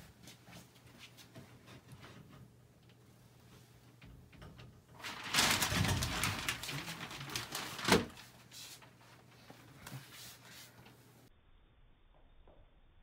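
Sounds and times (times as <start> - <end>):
snake scuffling and rustling: 5.0 - 10.8.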